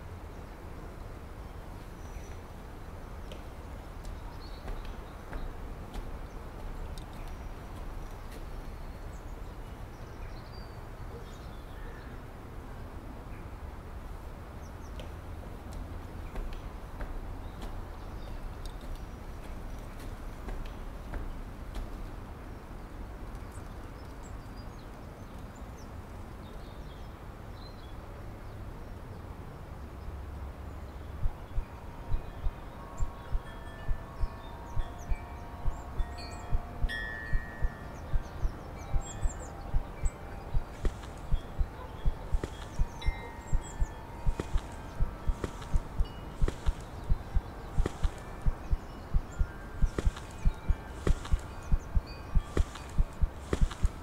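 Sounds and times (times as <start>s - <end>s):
small birds chirping: 0.2s - 12.2s, 14.5s - 29.1s, 29.8s - 54.0s
faint clicks: 3.2s - 8.8s, 14.9s - 22.2s, 37.4s - 54.0s
steady low rumble: 30.7s - 54.0s
faint bird chirps: 31.1s - 54.0s.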